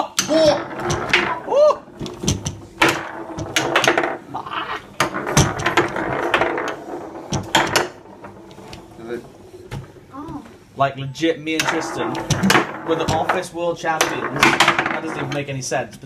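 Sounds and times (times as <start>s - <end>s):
hard objects clicking and knocking: 0.0s - 10.6s, 11.5s - 15.5s
person exclaiming: 1.5s - 1.8s.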